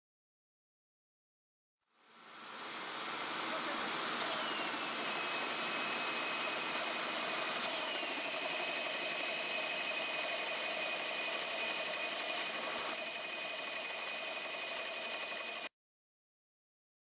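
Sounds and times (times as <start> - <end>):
descending whine: 2.1 - 15.7
hole saws grinding through metal: 2.7 - 15.6.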